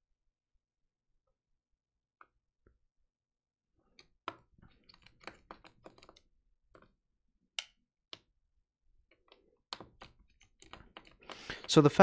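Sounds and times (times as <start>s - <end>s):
small parts clicking and tapping: 3.9s - 8.4s, 9.0s - 12.0s.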